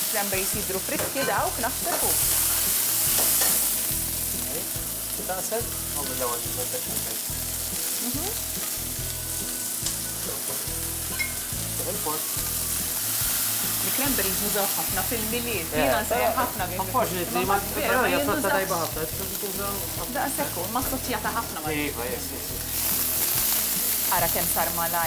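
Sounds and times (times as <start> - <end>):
cranberries sizzling in a pan: 0.0 - 25.0.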